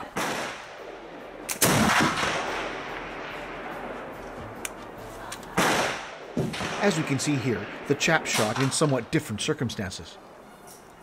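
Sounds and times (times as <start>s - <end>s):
rifle shots with echo: 0.0s - 4.2s, 5.5s - 9.1s.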